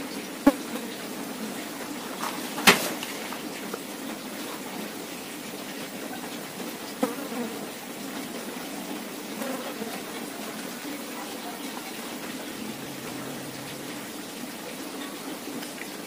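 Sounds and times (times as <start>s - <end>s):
steady low buzz: 12.4s - 14.6s.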